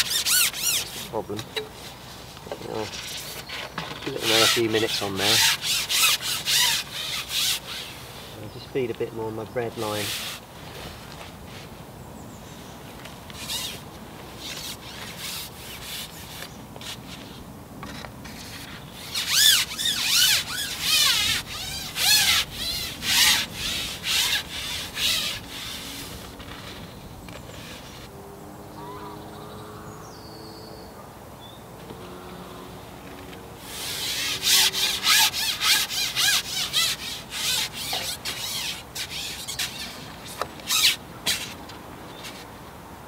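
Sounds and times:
fishing pole sliding and rubbing: 0.0s - 8.4s, 9.7s - 11.8s, 13.3s - 28.1s, 33.6s - 42.5s.

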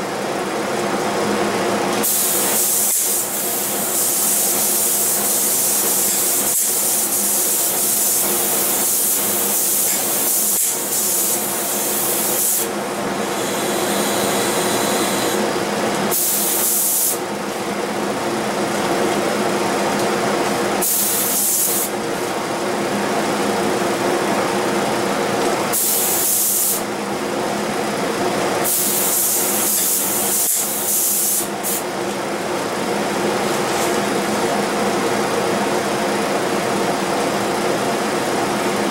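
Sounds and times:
steady machine hum: 0.0s - 38.9s
spray gun hissing: 2.0s - 12.7s, 16.1s - 17.2s, 20.8s - 21.9s, 25.7s - 26.8s, 28.6s - 31.8s.

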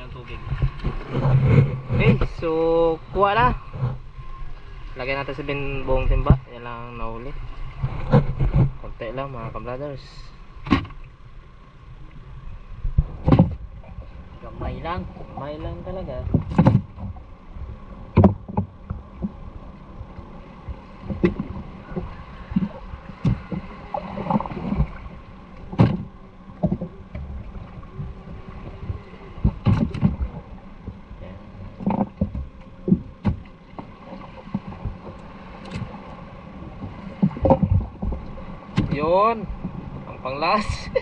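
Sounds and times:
knocks and thuds: 12.9s - 13.6s, 16.3s - 17.2s, 18.2s - 19.3s, 25.7s - 26.9s, 31.8s - 33.5s.

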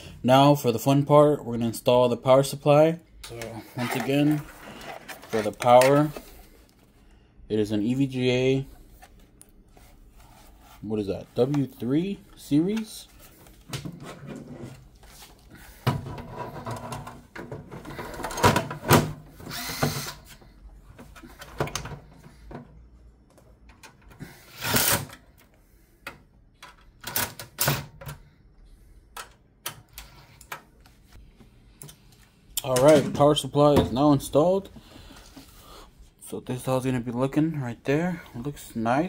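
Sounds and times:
electric screwdriver running: 19.5s - 20.2s.

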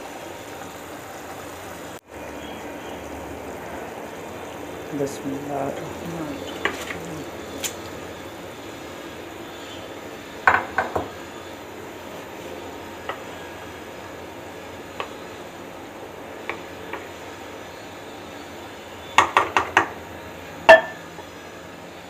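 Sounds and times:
steady hiss of boiling pot: 0.0s - 22.0s
ladle knocking against metal pot: 20.7s - 21.0s.

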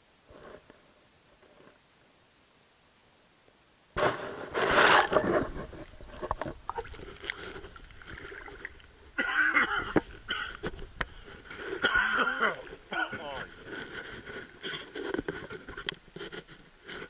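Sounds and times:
water splashing: 4.5s - 15.6s.

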